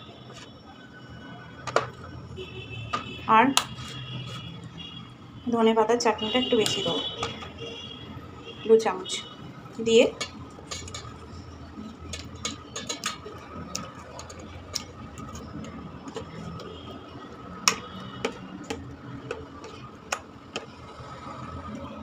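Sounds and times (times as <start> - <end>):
fingers and fish tapping steel bowl: 10.1 - 11.2, 11.8 - 20.8.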